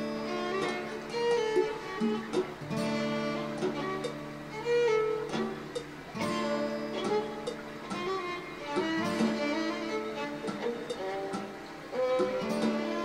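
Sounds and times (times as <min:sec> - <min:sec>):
bowed string melody: 0:00.0 - 0:13.0
plucked strings: 0:00.0 - 0:13.0.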